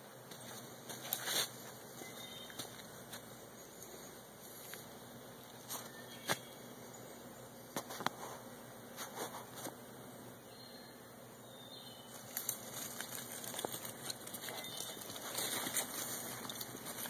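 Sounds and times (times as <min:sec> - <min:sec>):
footsteps rustling dry leaves: 0:00.3 - 0:06.5, 0:12.0 - 0:17.0
twigs snapping: 0:12.2 - 0:17.0.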